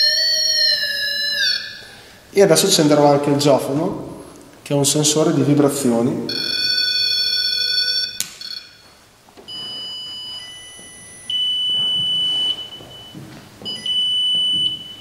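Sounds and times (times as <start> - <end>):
high electronic beeps: 6.3 - 7.3.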